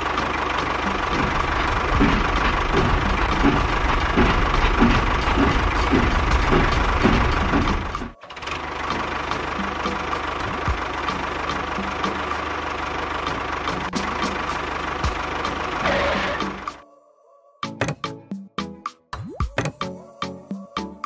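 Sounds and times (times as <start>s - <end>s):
toy train clacking on track: 1.0s - 8.2s.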